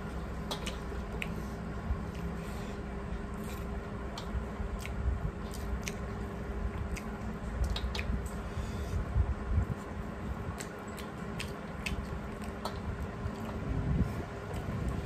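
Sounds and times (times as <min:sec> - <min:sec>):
chewing: 0:00.0 - 0:08.4, 0:09.7 - 0:15.0
wet squishing of food by hand: 0:00.0 - 0:15.0
wet mouth clicks: 0:03.6 - 0:06.1, 0:06.8 - 0:08.4, 0:10.5 - 0:13.6.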